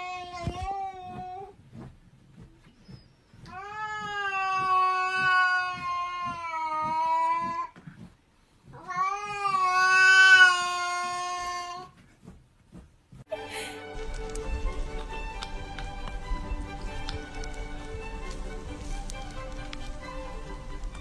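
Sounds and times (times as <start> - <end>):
cat yowling: 3.6 - 7.5.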